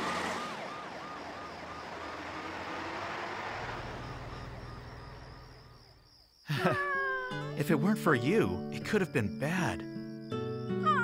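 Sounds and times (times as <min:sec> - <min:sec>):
ambulance siren yelping: 0:00.0 - 0:02.8
engine and road rumble: 0:00.0 - 0:06.3.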